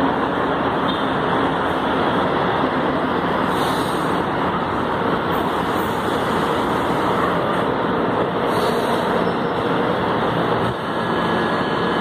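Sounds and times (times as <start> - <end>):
train hum and hiss: 0.0 - 12.0.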